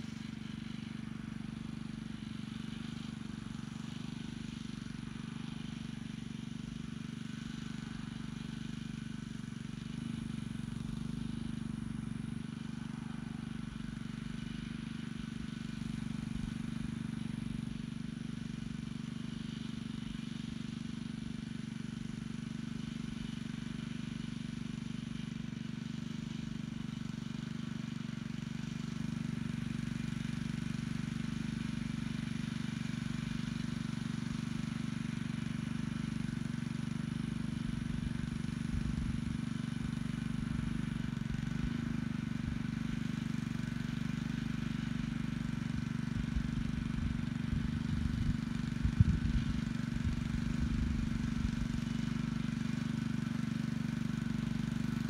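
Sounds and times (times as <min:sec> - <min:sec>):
tiller engine running under load: 0:00.0 - 0:55.0.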